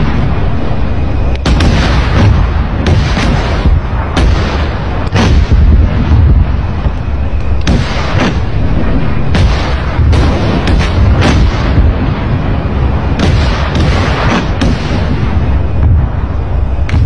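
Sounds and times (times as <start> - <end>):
constant low rumble: 0.0 - 17.0
sharp gunshots: 1.4 - 6.6, 7.6 - 12.2, 13.1 - 15.9.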